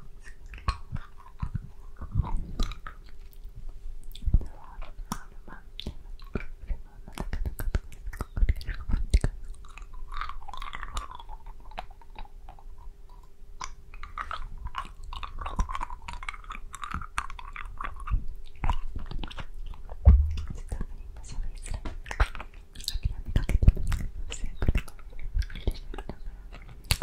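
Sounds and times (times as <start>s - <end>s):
wet mouth clicks and smacks: 0.2s - 12.6s, 13.2s - 27.0s
soft whispering: 4.1s - 9.6s, 20.0s - 27.0s
low thump: 20.0s - 20.8s.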